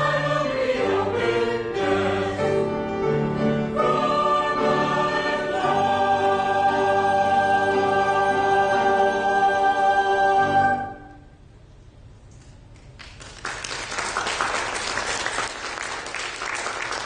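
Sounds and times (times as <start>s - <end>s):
church choir with piano: 0.0s - 11.2s
congregation applauding: 12.8s - 17.0s.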